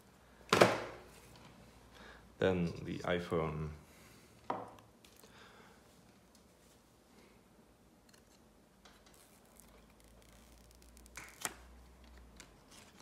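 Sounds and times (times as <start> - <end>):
paper cover being peeled: 8.1 - 13.0
sharp paper snaps: 9.1 - 13.0.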